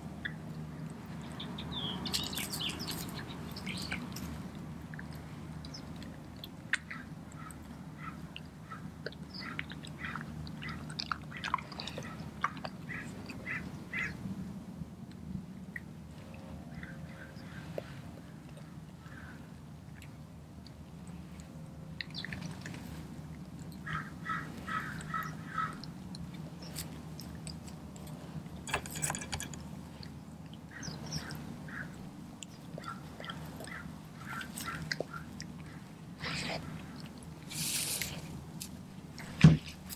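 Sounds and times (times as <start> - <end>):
low background hum: 0.0 - 39.9
dog chewing wet food: 29.6 - 37.5.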